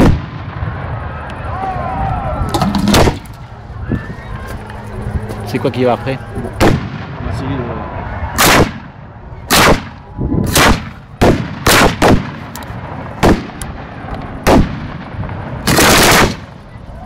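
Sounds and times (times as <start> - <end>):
firework bangs: 0.0 - 1.3, 2.4 - 3.4, 6.5 - 7.4, 8.4 - 8.9, 9.5 - 16.7.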